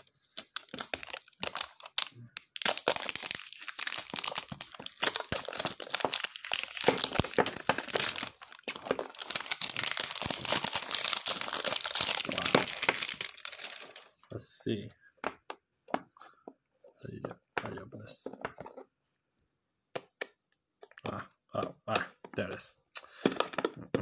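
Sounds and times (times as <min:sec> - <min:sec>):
plastic shrink wrap crinkling: 0:00.0 - 0:14.2.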